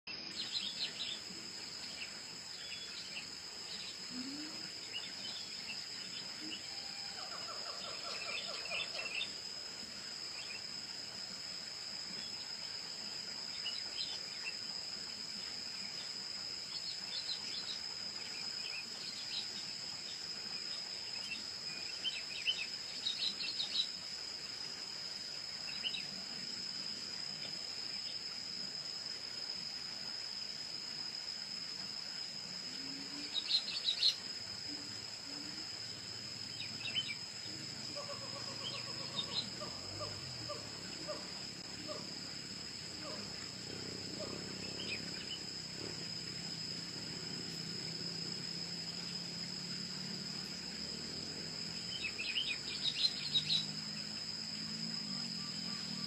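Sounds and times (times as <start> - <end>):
high-pitched insect trill: 0.1 - 56.0
low rattling call: 1.9 - 9.4, 37.9 - 42.1.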